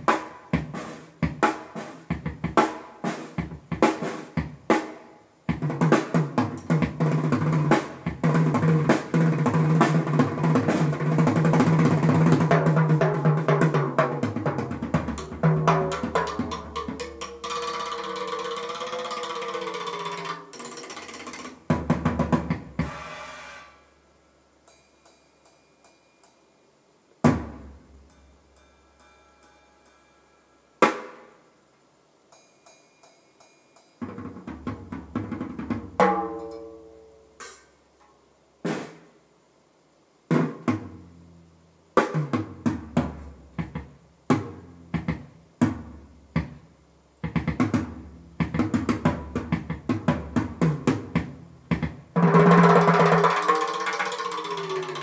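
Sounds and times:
drum kit through loudspeakers: 0:00.0 - 0:23.9, 0:27.2 - 0:29.1, 0:30.8 - 0:31.4, 0:34.0 - 0:36.5, 0:38.6 - 0:39.2, 0:40.3 - 0:55.0
crashing cymbals: 0:22.8 - 0:26.9, 0:27.7 - 0:31.6, 0:32.2 - 0:34.0, 0:52.7 - 0:55.0.

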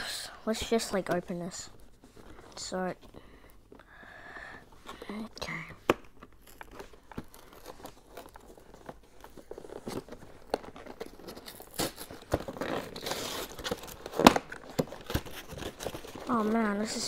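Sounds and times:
box clicks and crinkles: 0:04.8 - 0:17.0
packaging crinkling and tearing: 0:05.0 - 0:17.0.

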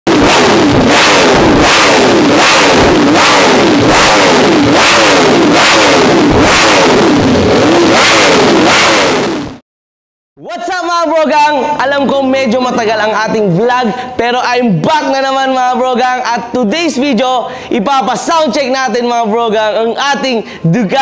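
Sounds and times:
motorcycle engine revving: 0:00.1 - 0:09.6.

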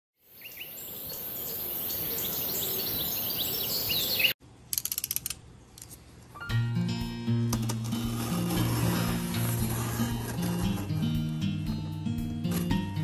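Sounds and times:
birds chirping: 0:00.2 - 0:04.4
small sharp clicks: 0:04.7 - 0:06.0.

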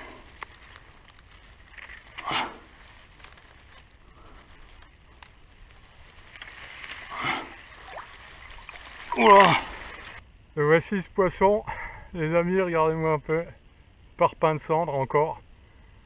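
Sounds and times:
grass rustling: 0:00.0 - 0:10.2
water splashing: 0:05.8 - 0:10.2.

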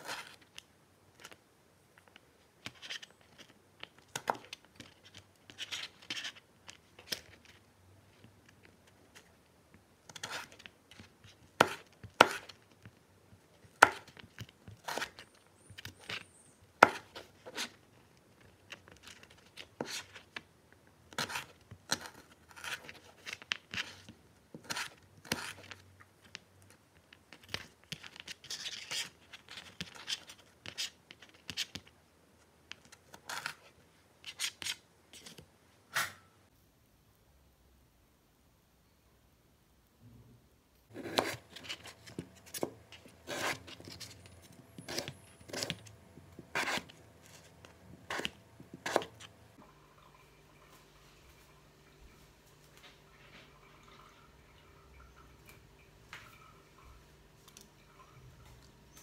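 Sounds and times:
knife chopping carrots on board: 0:11.6 - 0:12.6, 0:13.7 - 0:15.2, 0:16.8 - 0:17.7, 0:40.9 - 0:44.0, 0:47.9 - 0:49.3.

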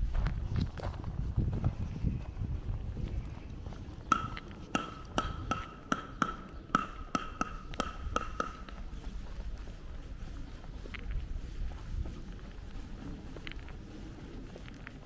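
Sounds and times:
sharp ringing taps: 0:04.1 - 0:08.8.

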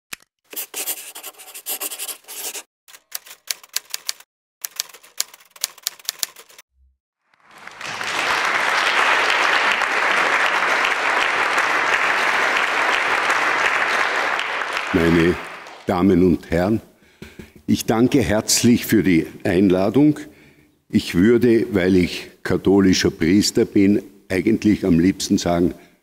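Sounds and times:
marker scratching on paper: 0:00.5 - 0:02.7
audience applauding: 0:07.3 - 0:15.9.

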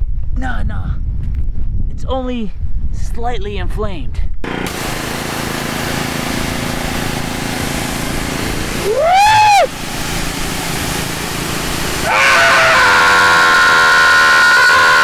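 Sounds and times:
pressure washer jet hissing: 0:04.5 - 0:15.0
person crying out: 0:08.8 - 0:09.7, 0:12.0 - 0:15.0.

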